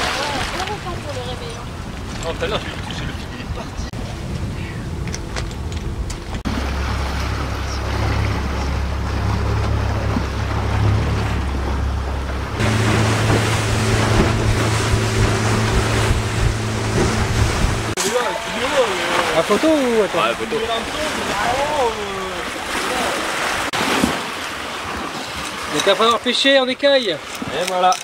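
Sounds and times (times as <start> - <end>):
boat engine running: 0.0 - 23.8
water rushing past hull: 0.0 - 27.7
wind on microphone: 0.9 - 6.5, 12.4 - 18.0.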